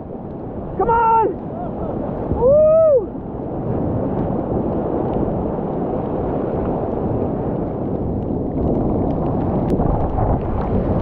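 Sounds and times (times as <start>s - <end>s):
whitewater rushing: 0.0s - 7.3s
wind buffeting microphone: 0.0s - 11.0s.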